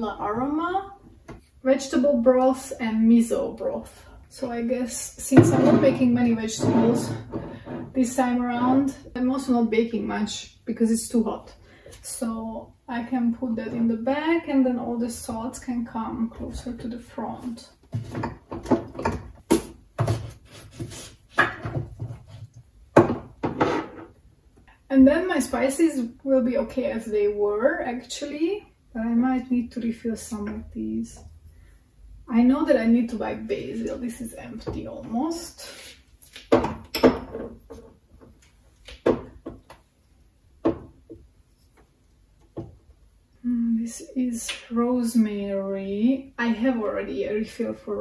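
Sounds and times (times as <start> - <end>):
containers knocking on wooden shelf: 22.9 - 24.0, 40.6 - 41.2.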